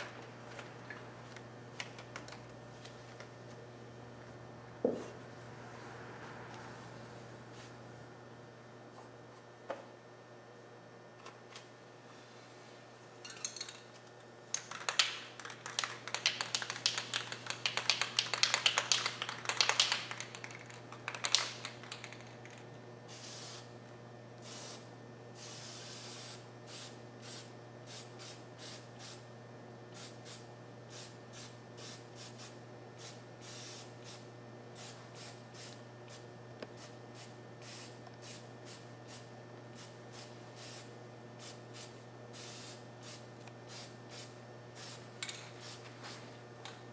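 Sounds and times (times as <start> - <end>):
aerosol spray can hissing: 23.1 - 23.6, 24.4 - 24.8.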